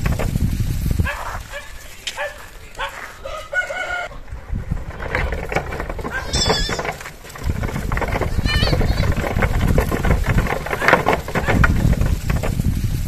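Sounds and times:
goats calling: 0:01.0 - 0:05.0, 0:05.8 - 0:09.8
chickens clucking: 0:01.0 - 0:12.4
rooster crowing: 0:03.2 - 0:04.2.

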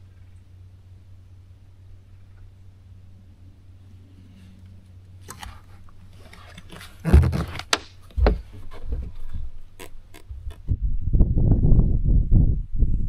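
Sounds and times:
low steady hum: 0:00.0 - 0:13.0
rod thumps and scrapes on deck: 0:05.3 - 0:09.2.

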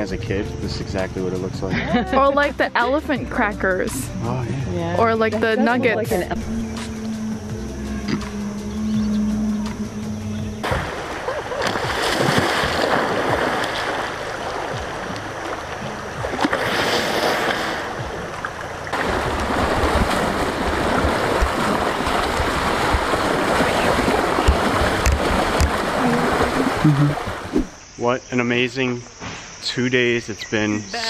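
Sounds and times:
water splashing: 0:05.0 - 0:27.8.

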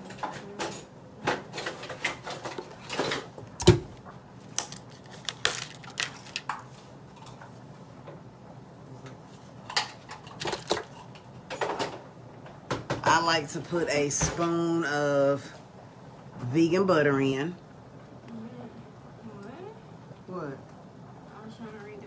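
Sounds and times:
containers and utensils clicking: 0:04.6 - 0:06.6.

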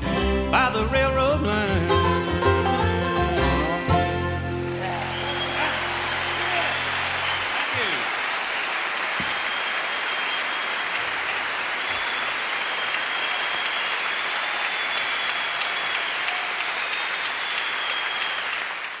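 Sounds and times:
audience applauding: 0:04.3 - 0:19.0.

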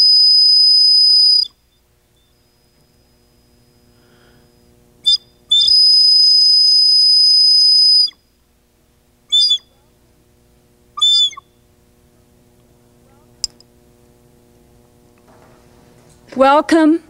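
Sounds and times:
high-pitched whistle blasts: 0:00.0 - 0:08.2, 0:09.3 - 0:09.8, 0:11.0 - 0:11.6.

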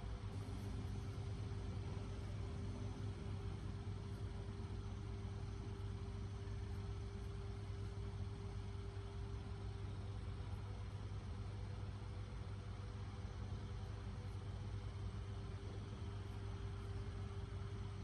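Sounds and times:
thin steady tone: 0:00.0 - 0:10.8
low machine hum: 0:00.0 - 0:18.0.

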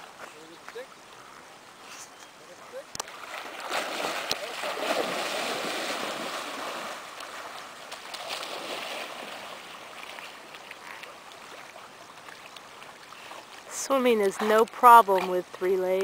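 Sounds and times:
dog splashing in water: 0:03.2 - 0:07.0.

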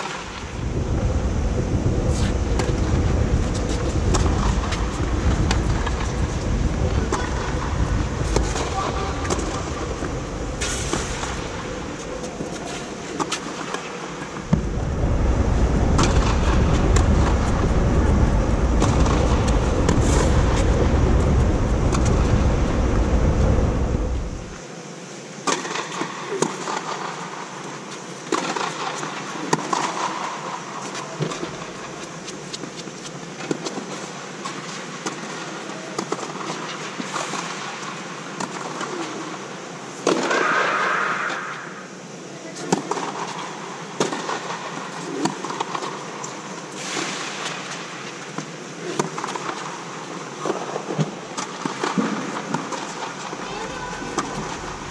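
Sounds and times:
steady hiss: 0:00.0 - 0:54.9
loud low rumble: 0:00.5 - 0:12.0, 0:14.4 - 0:24.6.

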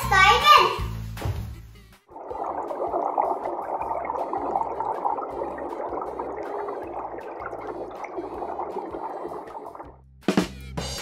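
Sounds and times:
muffled underwater rush: 0:02.1 - 0:10.0
water bubbling: 0:02.1 - 0:10.0.

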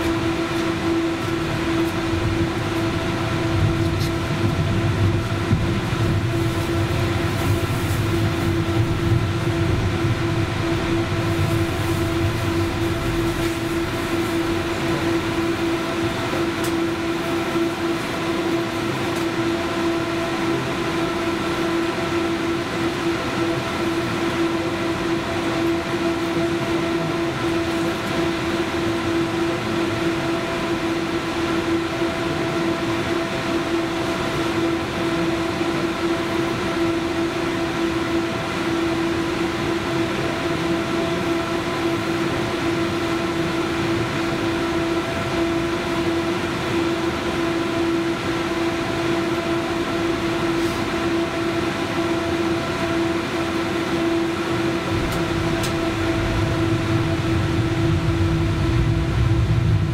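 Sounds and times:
tram electrical hum: 0:00.0 - 0:59.9
background rumble: 0:54.9 - 0:59.9.

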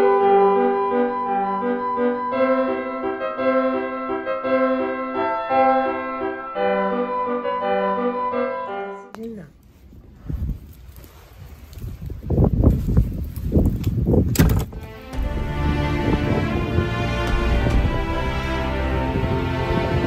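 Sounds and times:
piano music: 0:00.0 - 0:09.1, 0:14.8 - 0:20.0.

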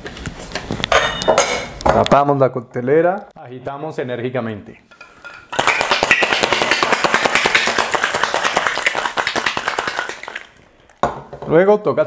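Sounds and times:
ice rattling in cocktail shaker: 0:05.5 - 0:10.6.

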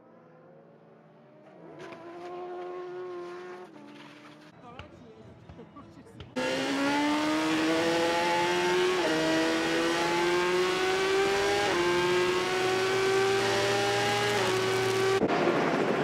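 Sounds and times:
racing motorcycle engine accelerating: 0:06.4 - 0:16.0.

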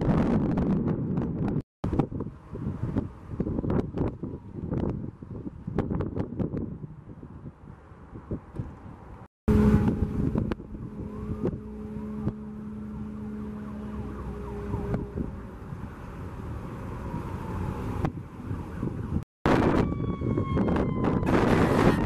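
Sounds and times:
wind noise: 0:00.0 - 0:13.1, 0:13.9 - 0:22.0
vehicle engine humming: 0:00.8 - 0:19.2
distant siren wailing: 0:09.5 - 0:22.0.

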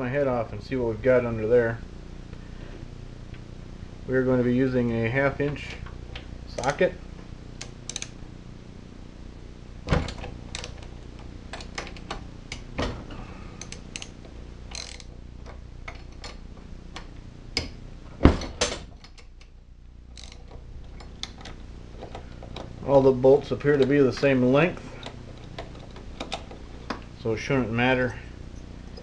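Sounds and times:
ratchet wrench clicking: 0:07.6 - 0:08.1, 0:13.6 - 0:15.1, 0:20.1 - 0:20.5.

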